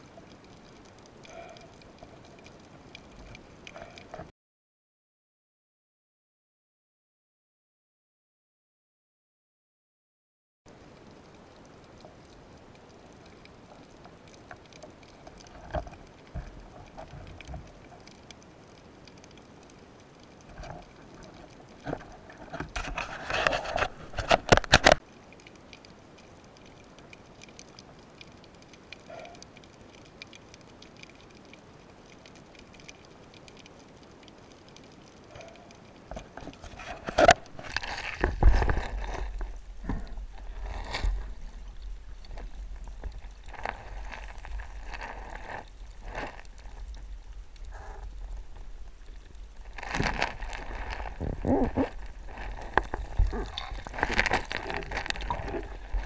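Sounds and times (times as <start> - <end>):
underwater crackling hiss: 25.5 - 56.0
underwater rattling and knocking: 49.8 - 56.0.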